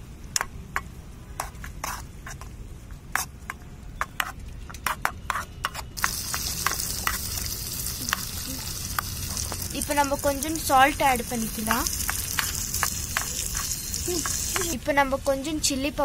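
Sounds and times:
frying sizzle: 6.0s - 16.0s.

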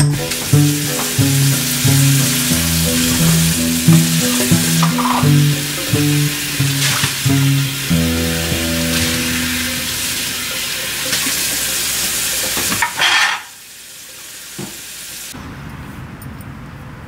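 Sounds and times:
water splash: 0.0s - 13.5s
faucet running into metal sink: 0.2s - 14.8s.

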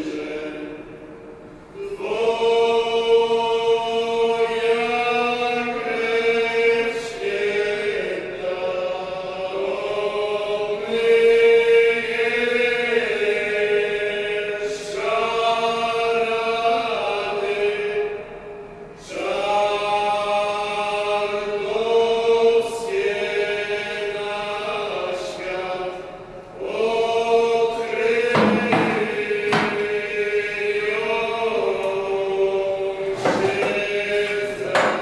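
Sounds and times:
vocal chanting: 0.0s - 35.0s.

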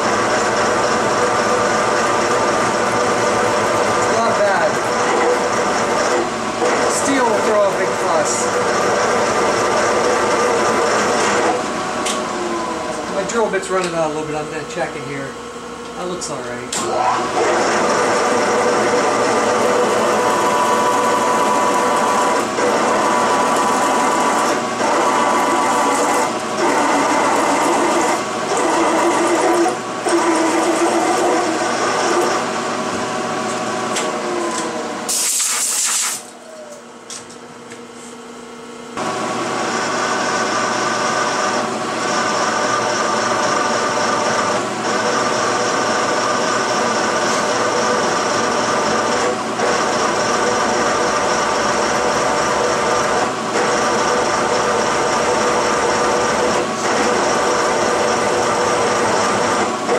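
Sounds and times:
drill boring through metal: 16.8s - 32.4s
short hiss: 35.1s - 36.2s.

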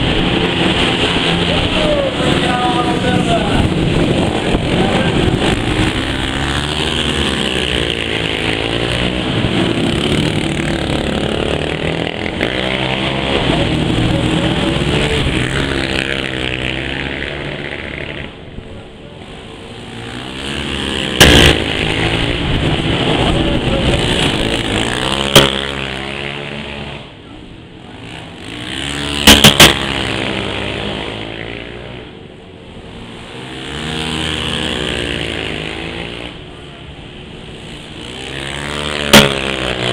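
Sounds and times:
quad bike engines revving: 0.0s - 39.9s
sharp crack: 21.1s - 22.0s, 24.2s - 25.8s, 39.0s - 39.9s.

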